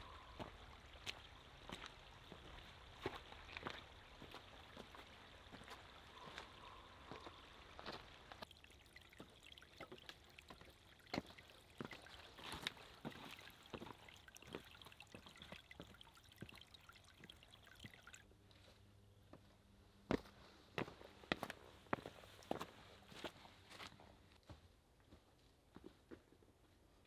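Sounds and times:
stream trickling over rocks: 0.0 - 18.3, 21.8 - 23.3.

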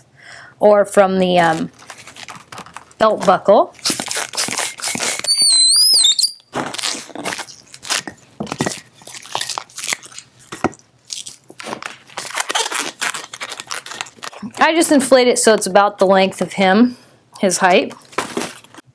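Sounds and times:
hand pump inflating balloon: 3.8 - 6.4
latex balloon squeaks and rubs: 3.8 - 8.1, 11.7 - 14.6
high squeal: 5.2 - 6.4.

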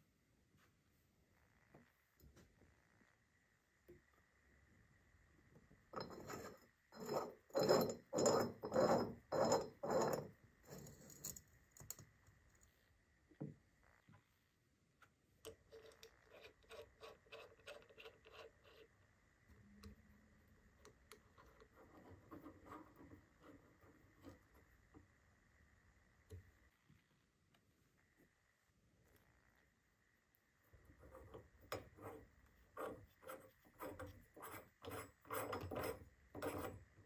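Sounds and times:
metal cap screwed on scraping: 5.9 - 11.4, 15.5 - 18.9, 32.8 - 36.8.

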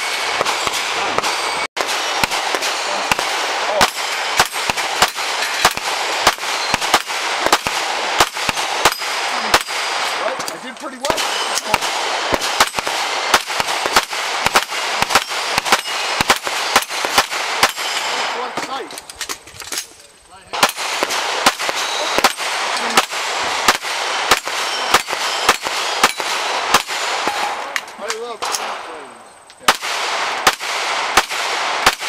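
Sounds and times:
steel targets ringing: 0.0 - 7.2, 8.8 - 11.8, 15.0 - 18.4, 24.2 - 26.5
rapid pistol shots: 0.0 - 18.6, 20.5 - 27.8, 29.6 - 32.0.

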